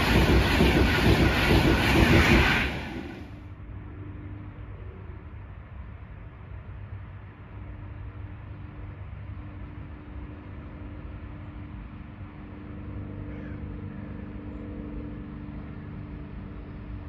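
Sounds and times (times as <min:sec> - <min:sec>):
engine running with low rumble: 0:00.0 - 0:17.0.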